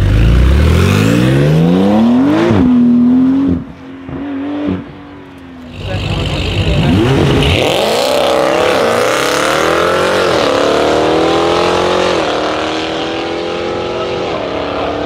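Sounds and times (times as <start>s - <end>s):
car engines revving hard: 0.0s - 15.0s.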